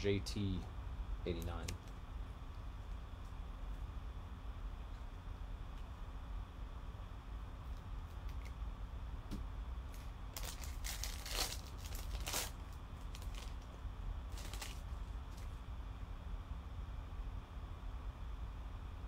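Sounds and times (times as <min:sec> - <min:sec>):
plastic wrapper crinkling and tearing: 0:10.3 - 0:13.7, 0:14.3 - 0:15.6.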